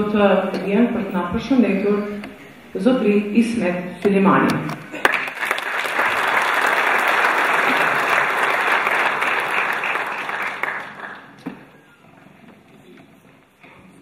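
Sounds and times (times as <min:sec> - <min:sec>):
audience applauding: 0:04.9 - 0:11.8.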